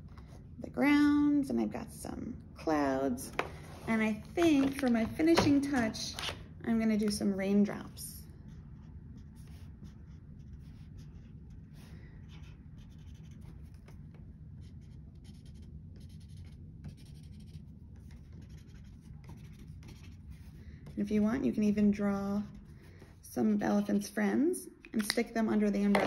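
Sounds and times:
steady low hum: 0:00.0 - 0:26.0
marker tapping and scratching on paper: 0:12.4 - 0:21.0, 0:25.0 - 0:26.0.

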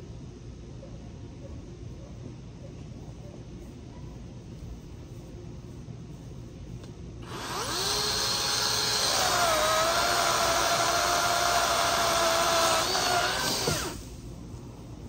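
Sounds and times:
chainsaw whine cutting branch: 0:07.2 - 0:14.1.

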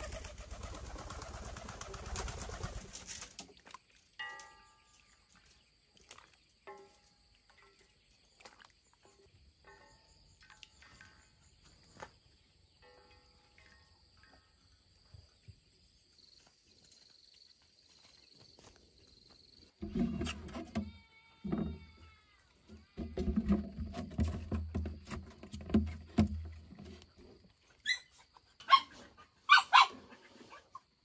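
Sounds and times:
insects chirping: 0:05.6 - 0:19.9
knocking and handling sounds: 0:23.0 - 0:27.1.

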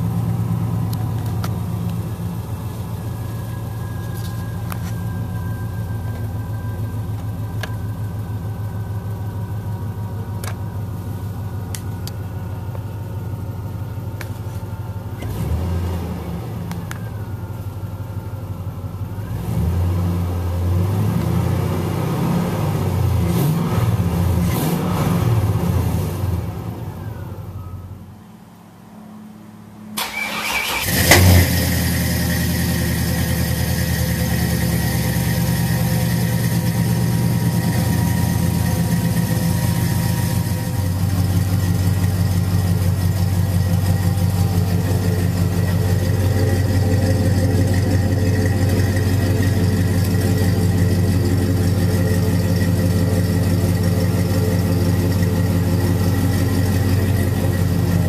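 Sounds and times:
engine starting and idling: 0:29.9 - 0:58.0.

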